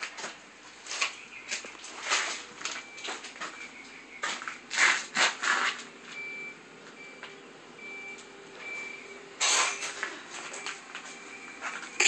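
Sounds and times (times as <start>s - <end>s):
high electronic beep: 6.2s - 12.0s.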